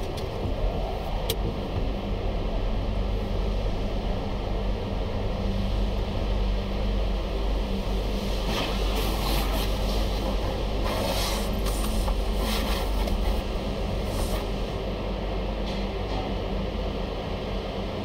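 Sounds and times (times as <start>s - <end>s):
car wash machinery humming: 0.0s - 18.0s
water spray hissing on car: 8.5s - 10.2s, 10.8s - 13.1s.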